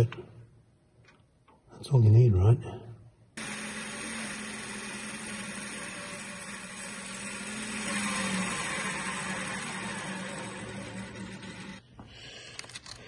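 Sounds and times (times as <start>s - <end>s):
metal lathe running: 3.4s - 11.8s
parting tool cutting metal: 3.4s - 11.8s.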